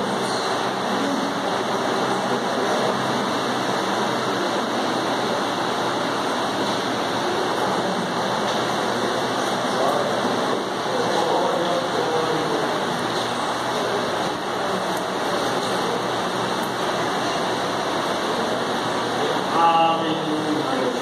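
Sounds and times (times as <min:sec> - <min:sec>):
congregation praying aloud: 0:17.4 - 0:21.0.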